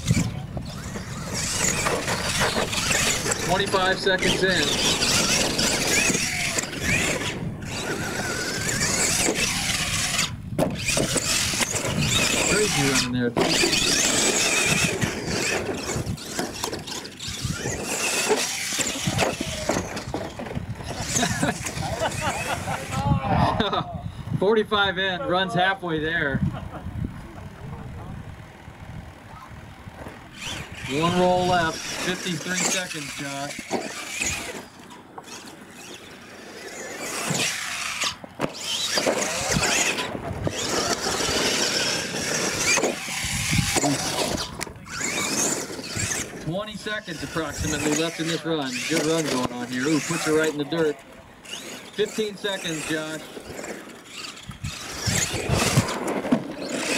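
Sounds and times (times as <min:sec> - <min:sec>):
tyres scrabbling on loose dirt: 0:00.0 - 0:23.0, 0:29.8 - 0:56.9
toy truck motor whining: 0:00.0 - 0:24.3, 0:28.3 - 0:56.9
toy truck tumbling knocks: 0:00.1 - 0:12.8, 0:13.4 - 0:21.8, 0:30.0 - 0:36.0, 0:37.0 - 0:46.4, 0:53.4 - 0:56.9.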